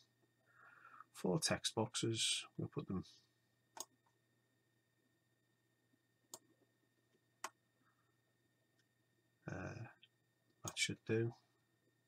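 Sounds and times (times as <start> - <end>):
computer mouse clicks: 3.7 - 4.1, 6.3 - 6.6.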